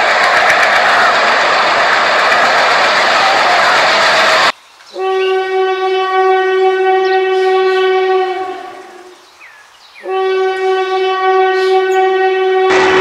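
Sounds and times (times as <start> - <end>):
running train rushing: 0.0 - 4.5, 12.7 - 13.0
locomotive air horn blasts: 4.9 - 9.2, 10.0 - 13.0.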